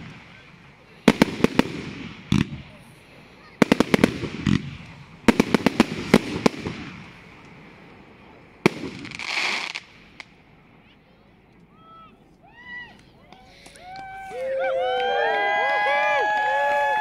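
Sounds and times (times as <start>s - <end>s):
firework hiss: 0.0s - 10.6s
fireworks bangs and crackles: 0.0s - 10.7s.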